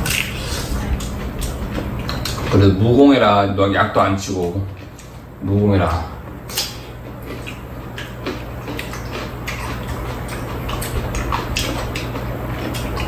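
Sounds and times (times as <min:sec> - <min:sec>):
wet crunches: 0:00.0 - 0:02.8, 0:06.4 - 0:13.0
people chewing melon: 0:00.0 - 0:13.0
steady low hum: 0:00.0 - 0:13.0.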